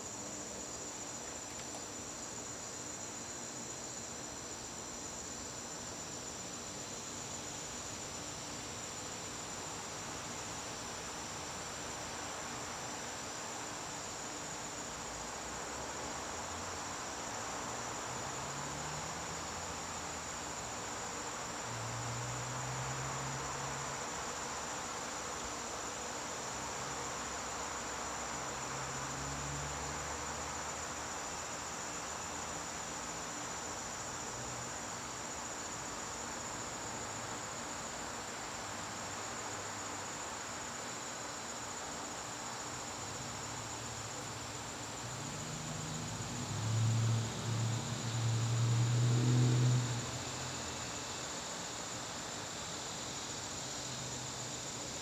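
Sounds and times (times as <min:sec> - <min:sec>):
crickets trilling: 0:00.0 - 0:55.0.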